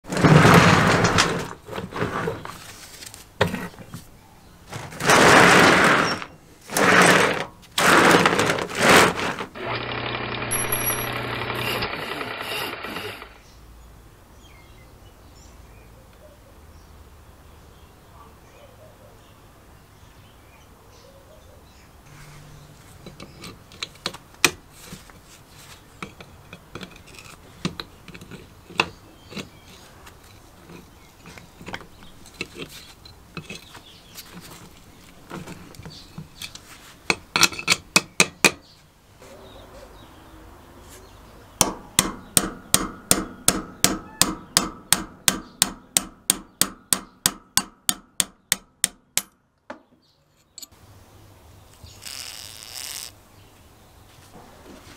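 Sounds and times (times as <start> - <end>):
clanks of metal parts handled: 35.3 - 37.9
hammer striking steel punch: 41.6 - 49.4.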